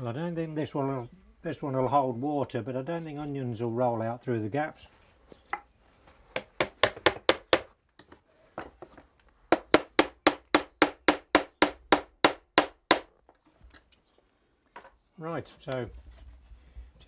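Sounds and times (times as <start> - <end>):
hammer tapping nails into wood: 6.3 - 7.7, 9.5 - 13.1.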